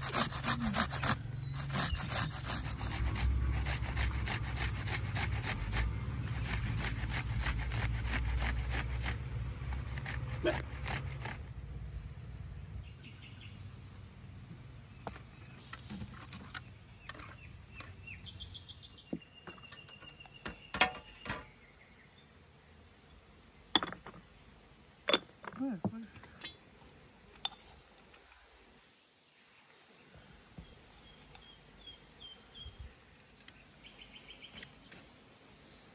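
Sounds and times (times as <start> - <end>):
onion grated on metal grater: 0.0 - 11.4
birds chirping: 0.1 - 2.9, 12.0 - 22.4, 29.6 - 35.9.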